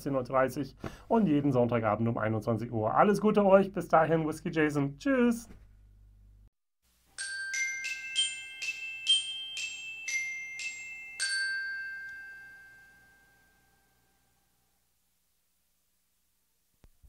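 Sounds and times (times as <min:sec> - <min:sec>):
glockenspiel-like bell jingle: 0:07.1 - 0:14.5.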